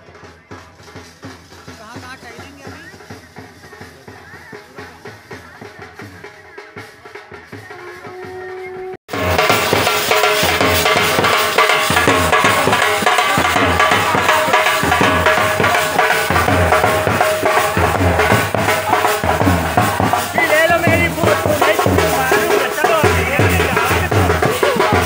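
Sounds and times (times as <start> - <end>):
loud music with drum beat: 0.0 - 25.0.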